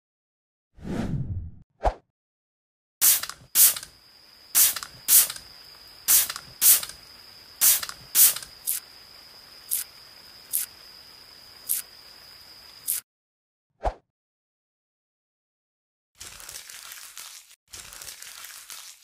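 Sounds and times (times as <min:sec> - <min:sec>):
spray bottle squirting: 0:03.0 - 0:03.9, 0:04.6 - 0:05.5, 0:06.1 - 0:07.0, 0:07.6 - 0:08.8, 0:09.7 - 0:09.9, 0:12.8 - 0:13.0.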